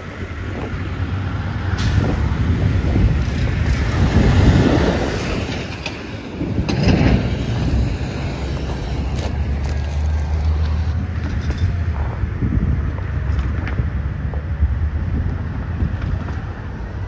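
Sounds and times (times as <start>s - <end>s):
road traffic rumble: 0.0s - 17.0s
vehicles passing: 0.0s - 17.0s.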